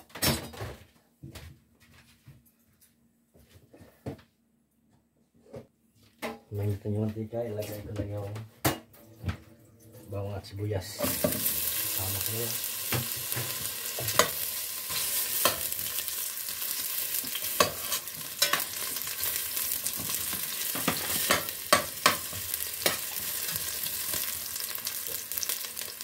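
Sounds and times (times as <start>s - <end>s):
garlic and onion sizzling: 9.8s - 26.0s
metal spoon scraping pot: 17.6s - 18.8s.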